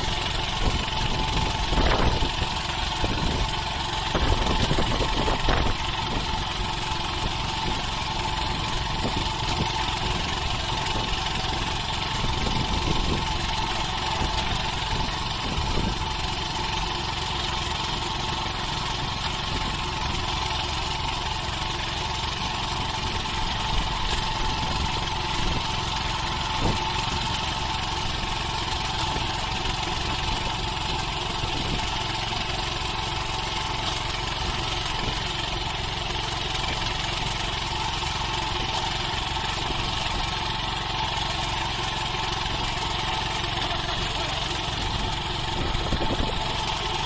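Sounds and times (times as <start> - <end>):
small engine running: 0.0 - 47.0.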